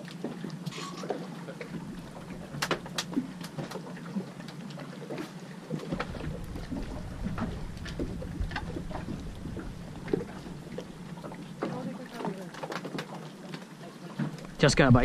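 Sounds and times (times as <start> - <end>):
knocks and clicks on a boat: 0.0 - 3.9, 4.5 - 13.6
low steady hum: 0.0 - 12.3
wind rumble on microphone: 5.9 - 11.5.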